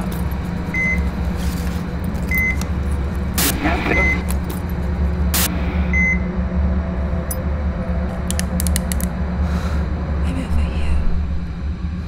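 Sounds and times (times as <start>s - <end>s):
low droning hum: 0.0s - 12.0s
sharp clicks: 8.2s - 9.1s.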